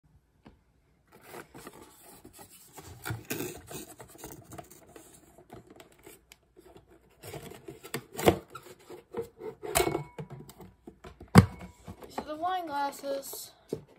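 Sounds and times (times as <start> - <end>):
cardboard packaging rubbing and scraping: 1.1 - 9.8.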